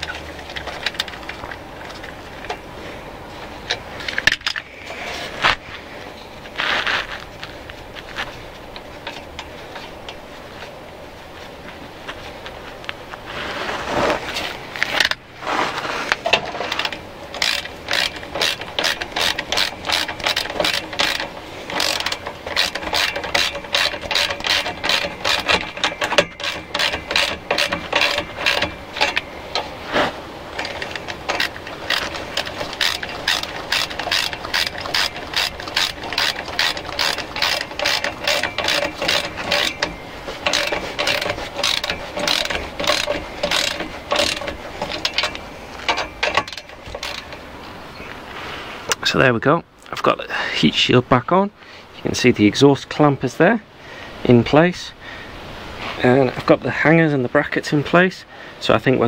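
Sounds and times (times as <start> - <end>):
ratchet spanner clicking: 16.2 - 29.7, 30.6 - 47.4.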